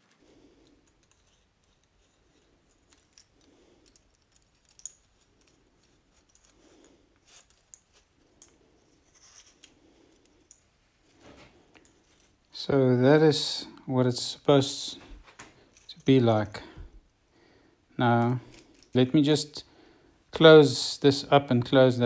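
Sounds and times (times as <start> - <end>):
metal puzzle rings clicking: 0.6 - 6.6.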